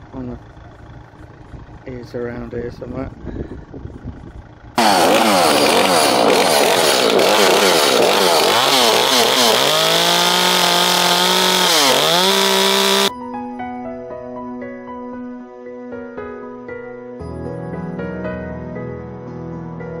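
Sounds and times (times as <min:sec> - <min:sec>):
chainsaw cutting log: 0:04.8 - 0:13.1.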